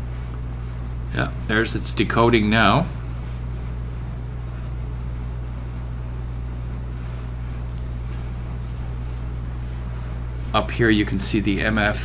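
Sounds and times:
low electrical hum: 0:00.0 - 0:12.0.

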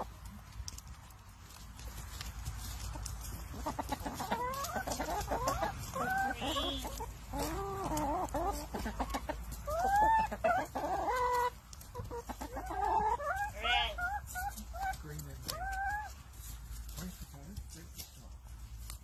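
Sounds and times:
hens clucking: 0:00.0 - 0:19.0.

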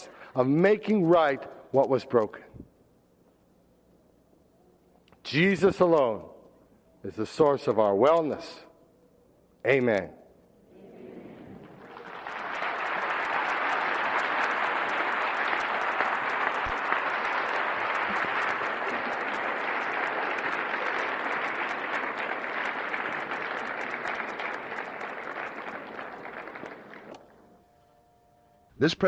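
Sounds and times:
audience applauding: 0:11.3 - 0:27.4.

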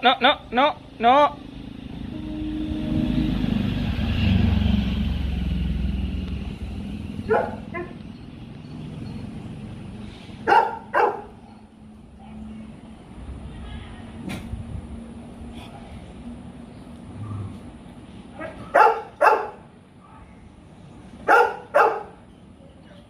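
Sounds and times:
dog barking: 0:07.2 - 0:08.0, 0:10.4 - 0:11.6, 0:18.4 - 0:19.6, 0:21.2 - 0:22.2.

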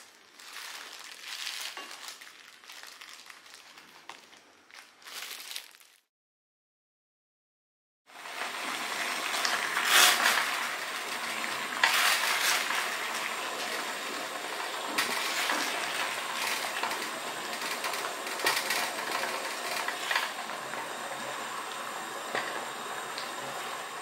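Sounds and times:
water boiling: 0:08.1 - 0:24.0.

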